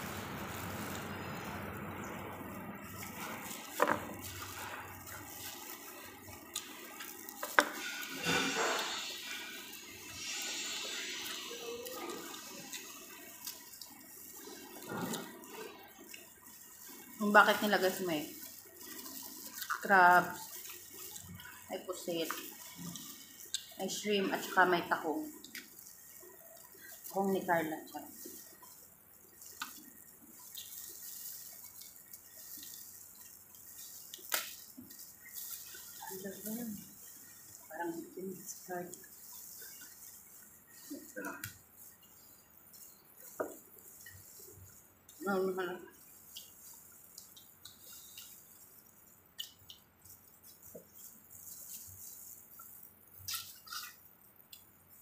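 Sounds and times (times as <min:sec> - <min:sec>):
crab shells crackling: 0:00.0 - 0:55.0
wet sucking eating sounds: 0:00.0 - 0:55.0
shells cracking wetly: 0:28.3 - 0:36.2.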